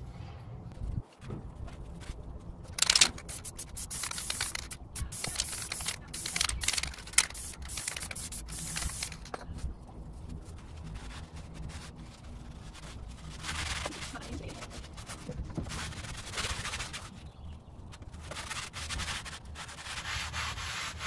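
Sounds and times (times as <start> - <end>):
aerosol spray hissing: 2.8 - 9.2.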